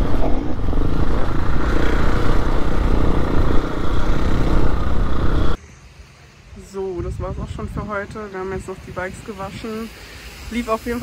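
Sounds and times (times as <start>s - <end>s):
rumbling rattling road noise: 0.0s - 5.6s
motocross bike engines: 0.0s - 6.5s.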